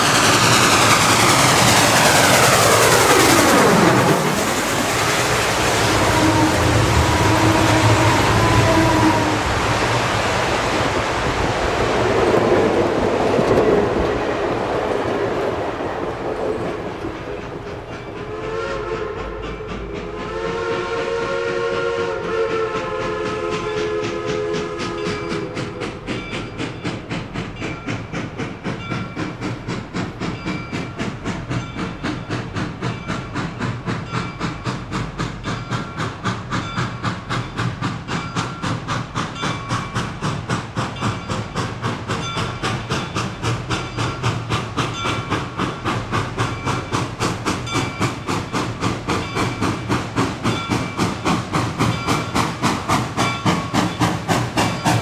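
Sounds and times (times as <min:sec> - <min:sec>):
locomotive exhaust chuffs: 0:00.0 - 0:55.0
steam locomotive chime whistle: 0:05.2 - 0:09.8, 0:18.0 - 0:27.0.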